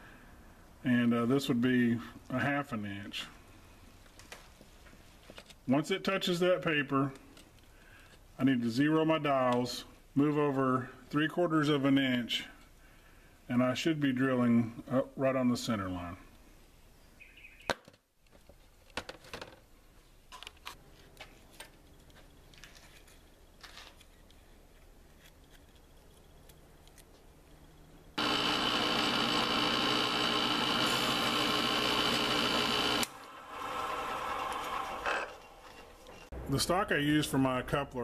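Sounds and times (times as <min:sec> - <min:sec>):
mill spindle motor whining: 0:28.2 - 0:36.2.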